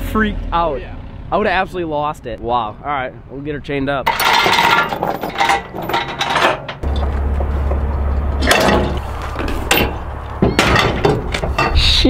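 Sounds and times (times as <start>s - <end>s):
steel chains rattling: 4.1s - 7.6s, 8.4s - 12.0s
metal clanks of chain binder: 4.1s - 7.8s, 8.4s - 11.8s.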